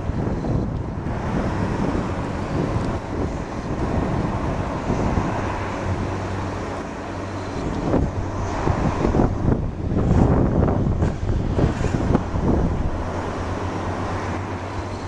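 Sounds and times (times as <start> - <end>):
distant jet engine rumble: 0.0 - 15.0
wind buffeting microphone: 0.0 - 15.0.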